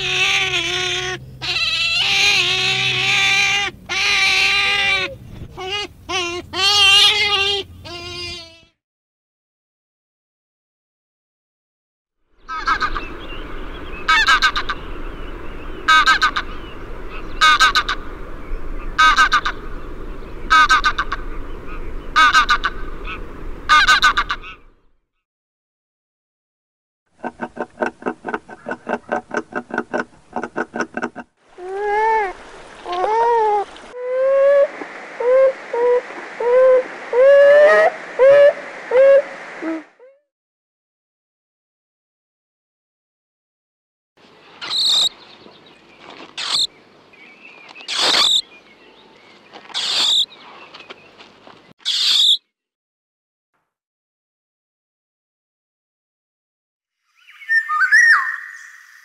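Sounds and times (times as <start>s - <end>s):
faint hiss: 31.5s - 40.0s
beaver pulsing calls: 31.6s - 39.8s, 44.6s - 45.2s, 46.4s - 46.7s, 47.8s - 48.5s, 49.7s - 50.4s, 51.8s - 52.4s
mole squeaking: 44.6s - 45.1s, 46.4s - 46.7s, 47.8s - 48.5s, 49.6s - 50.3s, 51.8s - 52.4s.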